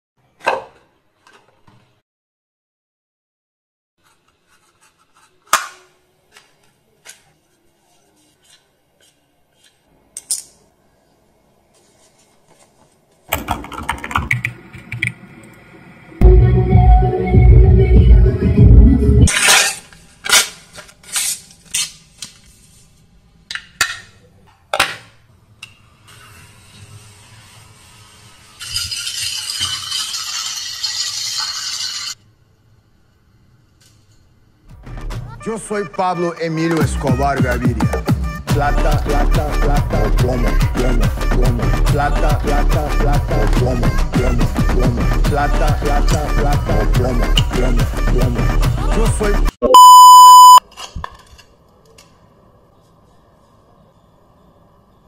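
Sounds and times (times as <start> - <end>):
rapid keyboard typing: 13.3 - 15.1.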